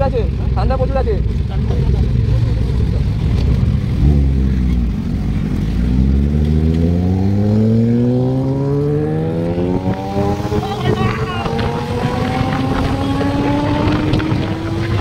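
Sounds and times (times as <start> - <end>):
motorcycle engines idling: 0.0 - 6.8
motorcycle accelerating hard: 1.5 - 15.0.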